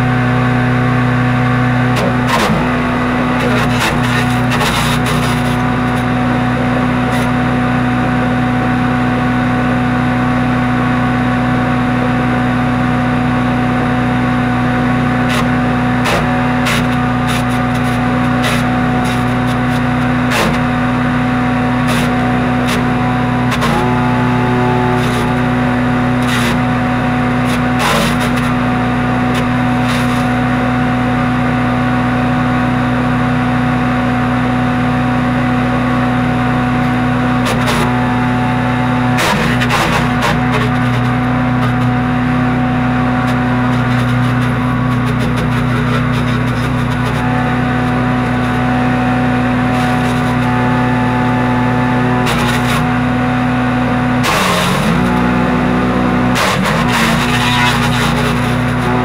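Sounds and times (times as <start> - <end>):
wood chipper engine running: 0.0 - 59.0
branches cracking in chipper: 1.8 - 8.1, 36.7 - 59.0.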